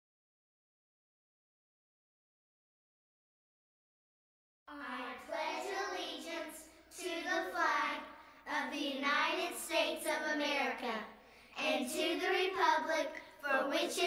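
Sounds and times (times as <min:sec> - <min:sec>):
children reciting: 0:04.7 - 0:14.0.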